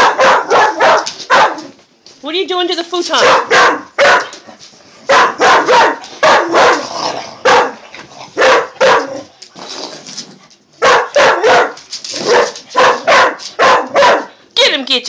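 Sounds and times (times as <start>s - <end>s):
dog barking: 0.0s - 1.7s, 3.2s - 4.4s, 5.1s - 9.3s, 10.8s - 14.4s.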